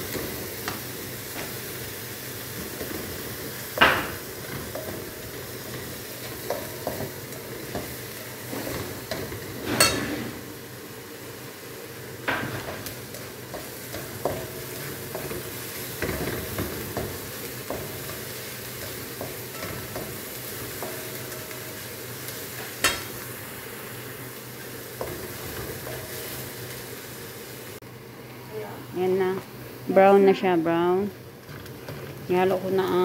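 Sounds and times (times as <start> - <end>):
onions sizzling in oil: 0.0 - 33.0
spatula scraping and tapping pan: 2.6 - 10.1, 12.3 - 21.8.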